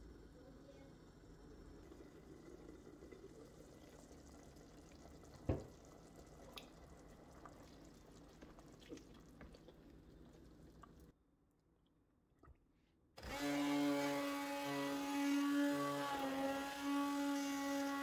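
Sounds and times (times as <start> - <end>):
soup bubbling in pot: 1.0 - 11.2.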